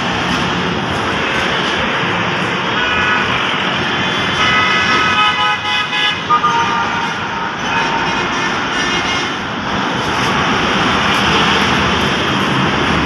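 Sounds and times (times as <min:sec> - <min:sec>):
road traffic passing: 0:00.0 - 0:13.0
vehicle horns honking: 0:04.2 - 0:09.4.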